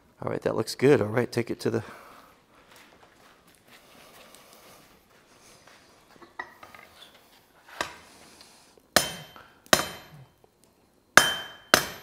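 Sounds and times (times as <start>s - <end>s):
hammer ringing on anvil: 9.0s - 10.3s, 11.2s - 12.0s
sharp metal clink: 9.0s - 10.3s, 11.2s - 12.0s.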